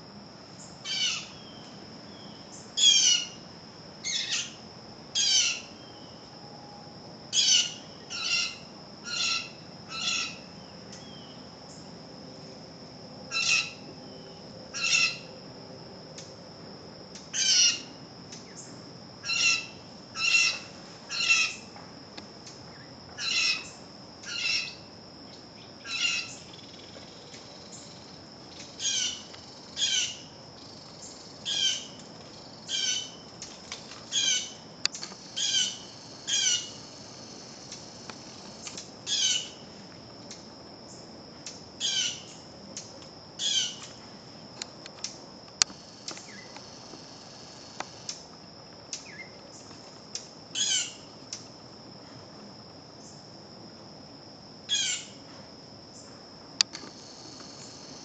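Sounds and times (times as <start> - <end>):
bird calling: 7.4 - 11.4, 19.2 - 21.7.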